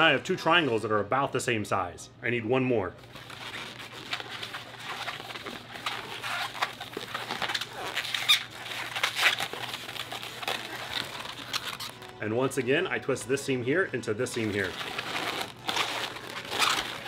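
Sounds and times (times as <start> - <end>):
balloon squeaking and rubbing: 3.0 - 12.4, 14.3 - 17.0.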